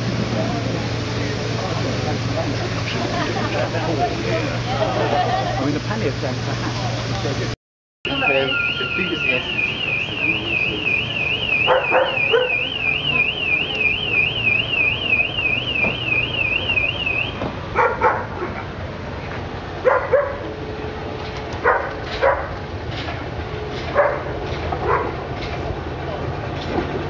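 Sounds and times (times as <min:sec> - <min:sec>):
train rumbling: 0:00.0 - 0:14.8, 0:17.3 - 0:27.0
electronic warbling alarm: 0:08.0 - 0:17.4.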